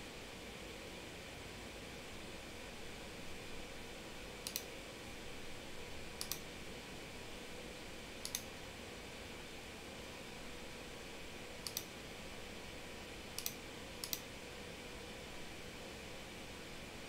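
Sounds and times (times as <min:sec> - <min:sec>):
faint steady hiss: 0:00.0 - 0:17.0
computer mouse clicking: 0:04.4 - 0:04.7, 0:06.2 - 0:06.4, 0:08.2 - 0:08.5, 0:11.6 - 0:11.9, 0:13.4 - 0:14.3.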